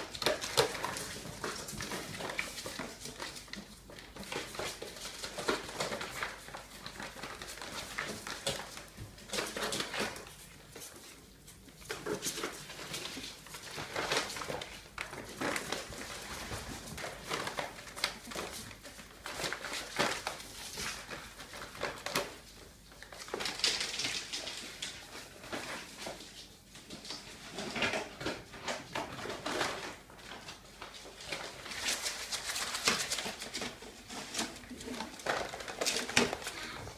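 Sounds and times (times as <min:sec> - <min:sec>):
claws scratching on tiled floor: 0:30.9 - 0:36.9.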